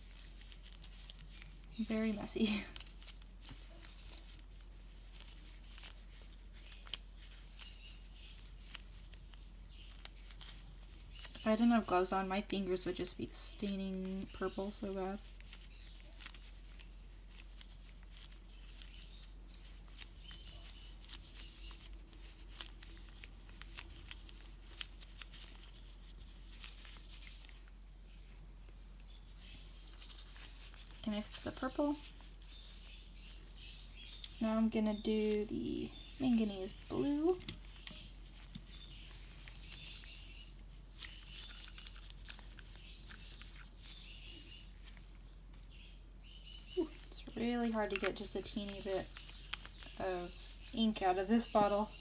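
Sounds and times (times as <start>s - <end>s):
rubber gloves squishing clay: 0.0s - 52.0s
high chirping squeaks: 18.6s - 24.0s, 29.1s - 52.0s
soft plastic clicks: 47.0s - 50.0s.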